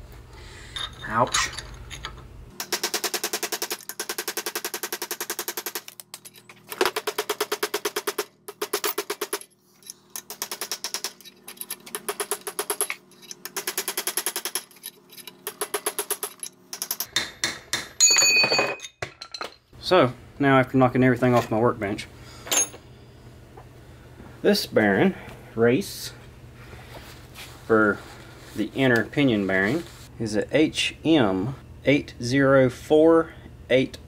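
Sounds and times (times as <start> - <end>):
hammer striking steel punch: 17.0 - 18.0.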